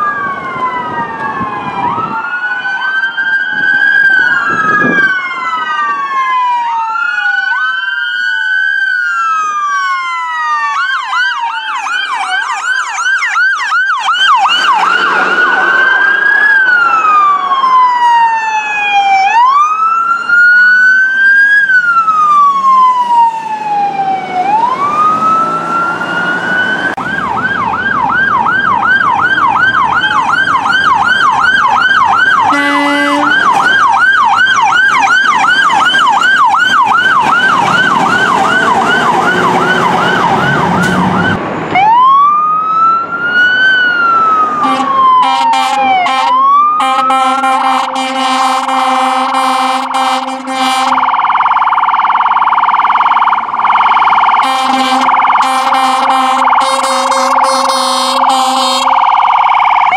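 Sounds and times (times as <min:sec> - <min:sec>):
ambulance siren wailing: 0:00.0 - 0:59.9
siren yelping fast: 0:00.0 - 0:59.9
horn blast: 0:32.5 - 0:33.7, 0:44.6 - 0:51.2, 0:54.4 - 0:59.0.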